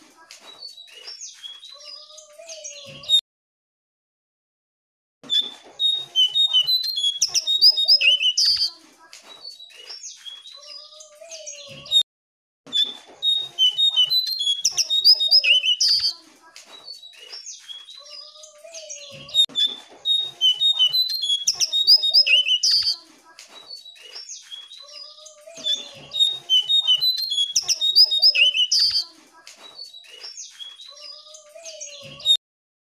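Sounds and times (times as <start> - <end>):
songbird rapid high chirping: 0.1 - 3.1, 5.3 - 12.0, 12.8 - 32.4
soft low whistled bird notes: 5.8 - 8.8.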